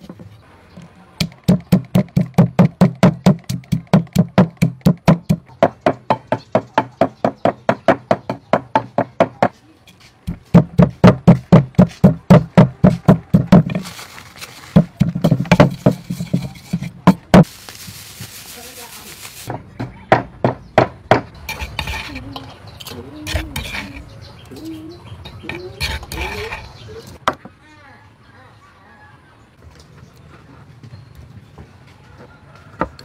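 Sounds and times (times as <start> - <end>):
pestle pounding in mortar: 1.2 - 9.5, 10.3 - 13.8, 14.8 - 17.5, 19.5 - 22.1.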